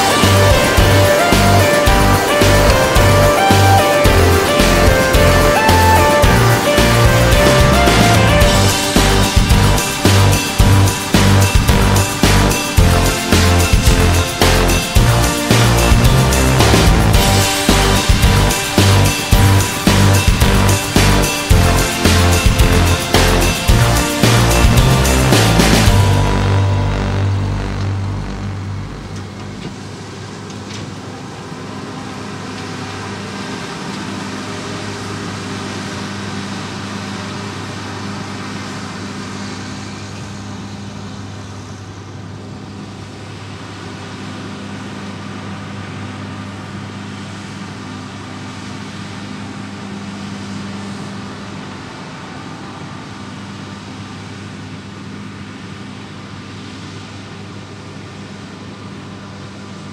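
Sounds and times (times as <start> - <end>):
combine harvester machinery rush: 0.0 - 41.1
tractor diesel engine drone: 0.0 - 55.6.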